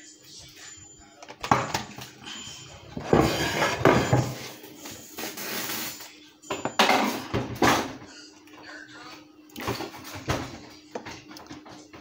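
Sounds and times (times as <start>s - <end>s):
scraping baking dish: 2.9s - 4.6s.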